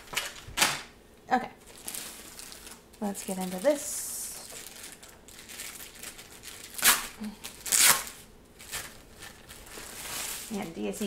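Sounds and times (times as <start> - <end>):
plastic wrap tearing: 1.6 - 11.0
loud plastic rips: 4.4 - 10.5.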